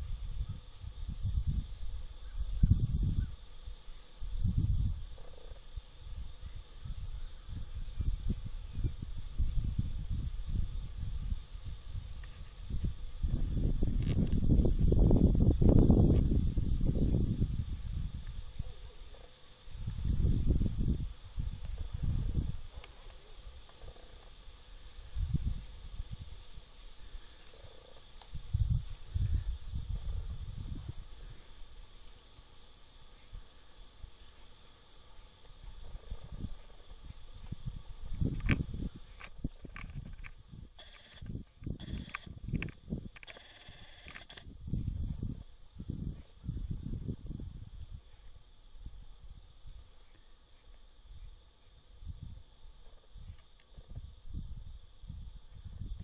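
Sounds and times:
wind buffeting microphone: 0.0s - 3.4s, 4.2s - 5.2s, 6.0s - 18.6s, 19.7s - 22.8s, 25.0s - 26.7s, 28.3s - 31.5s, 35.6s - 49.9s, 53.2s - 56.0s
insects chorus pulsing: 0.0s - 56.0s.

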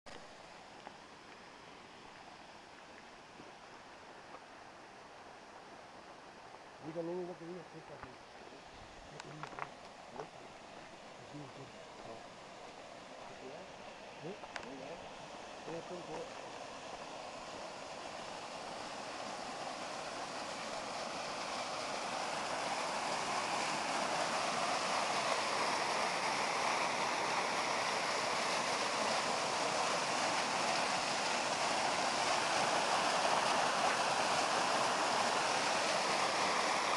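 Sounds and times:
waterfall rushing: 9.0s - 36.9s.

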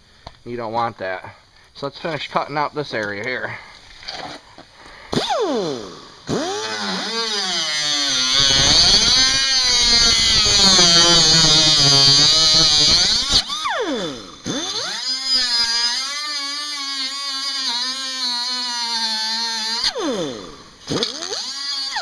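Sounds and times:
cutoff wheel grinding metal: 5.1s - 22.0s.

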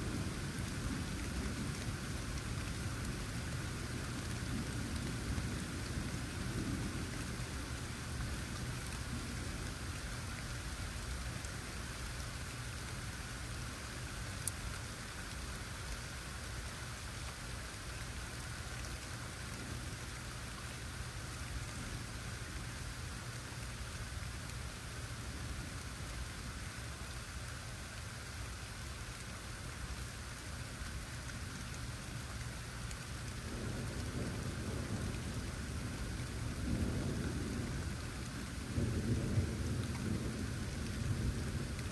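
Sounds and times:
steady rain falling: 0.0s - 41.9s
thunder rumble: 33.4s - 41.9s.

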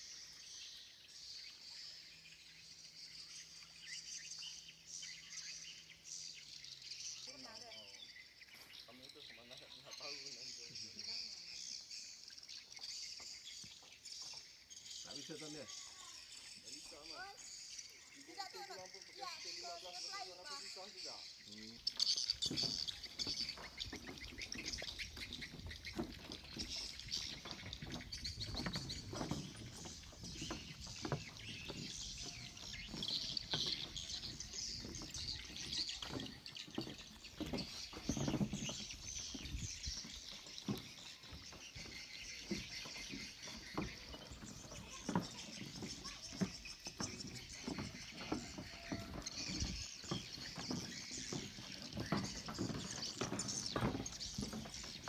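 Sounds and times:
birds chirping: 0.0s - 55.0s
footsteps on wooden boards: 21.8s - 55.0s.

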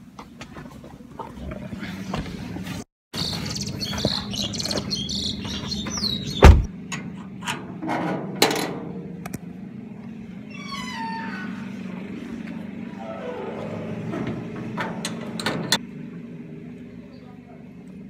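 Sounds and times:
short falling squeal: 13.0s - 14.6s
loud metal clank: 13.3s - 15.8s
metal gate latch rattling: 13.8s - 15.8s.

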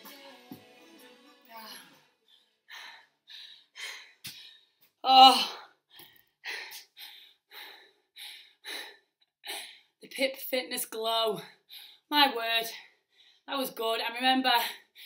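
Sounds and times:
woman breathing hard: 1.6s - 10.0s.

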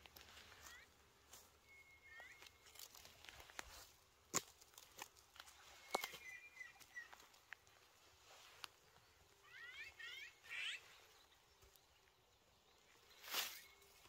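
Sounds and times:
footsteps crunching through dry leaves: 0.0s - 1.6s, 2.2s - 9.3s, 13.0s - 14.0s
thin whistling bird calls: 5.7s - 7.2s, 13.1s - 14.0s.

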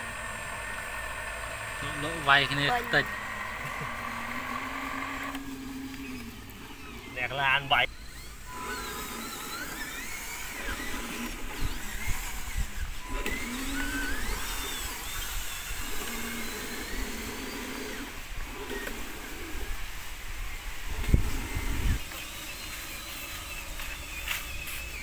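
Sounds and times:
birds chirping: 0.0s - 25.0s
small electric motor whining: 0.0s - 25.0s.

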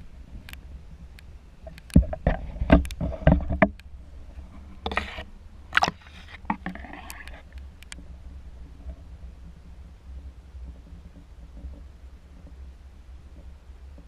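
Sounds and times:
low underwater rumble: 0.0s - 14.0s
water sloshing: 4.4s - 9.1s.

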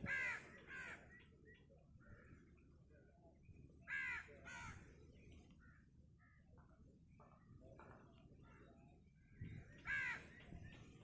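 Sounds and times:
crow cawing: 0.0s - 1.1s, 3.8s - 4.8s, 9.8s - 10.4s.

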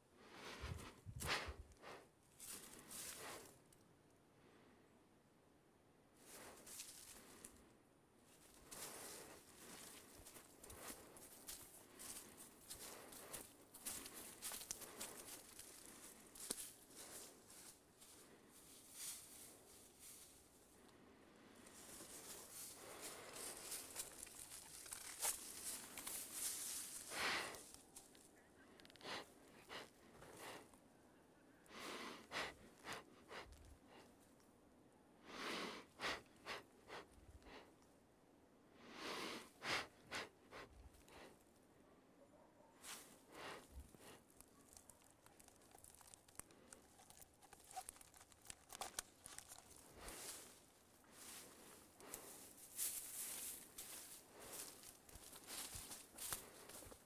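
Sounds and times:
man breathing: 0.2s - 3.5s, 26.8s - 27.8s
footsteps crunching dry leaves: 8.6s - 20.4s, 21.8s - 27.8s, 45.0s - 57.0s.

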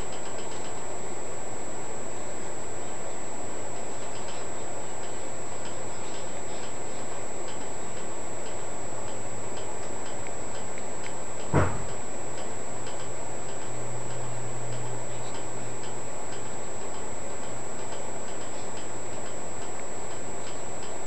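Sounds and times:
regular light ticking: 0.0s - 1.0s, 2.5s - 21.0s
low hum: 0.0s - 21.0s
steady background hiss: 0.0s - 21.0s
short knock: 11.5s - 11.9s.

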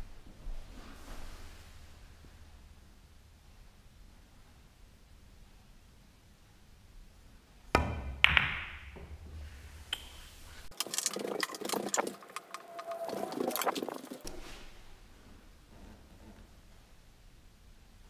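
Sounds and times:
pool balls clacking: 7.7s - 14.3s
cue tip striking ball: 7.8s - 9.4s
rapid clicks and knocks: 10.7s - 14.2s.

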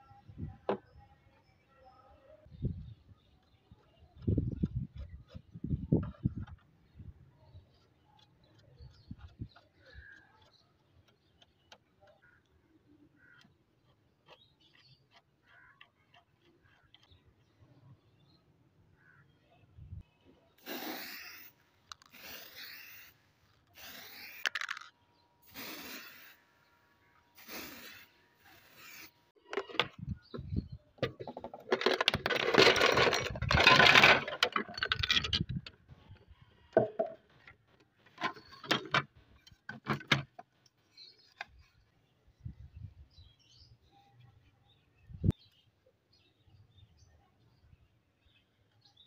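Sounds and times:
aerosol spray can hissing: 20.6s - 21.5s, 22.1s - 23.2s, 23.8s - 24.6s, 25.4s - 26.4s, 27.4s - 29.1s
plastic machine parts clattering: 24.3s - 24.9s, 29.4s - 30.1s, 31.0s - 35.9s, 36.8s - 40.4s.

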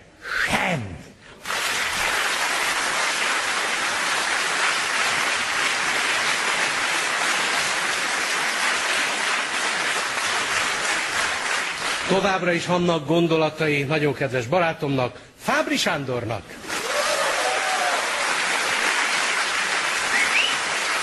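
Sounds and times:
audience applauding: 1.4s - 12.5s, 16.6s - 21.0s.

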